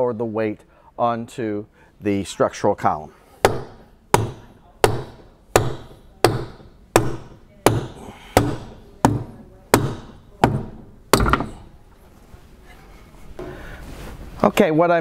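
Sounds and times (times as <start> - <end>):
sharp blows on wooden post: 3.4 - 11.6.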